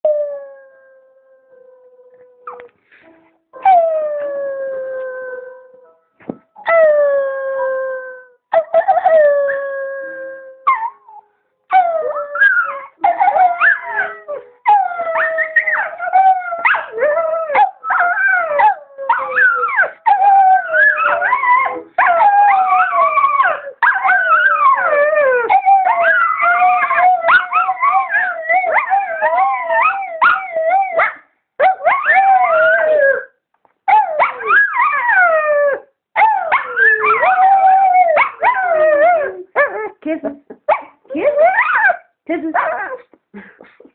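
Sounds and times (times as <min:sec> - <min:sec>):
dogs howling: 0:11.8 - 0:31.0, 0:33.9 - 0:39.4.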